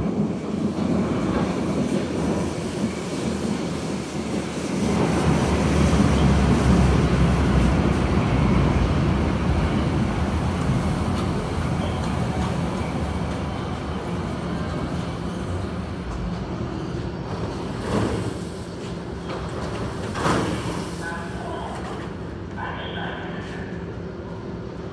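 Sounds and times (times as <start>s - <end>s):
train rumbling and braking: 0.0s - 24.9s.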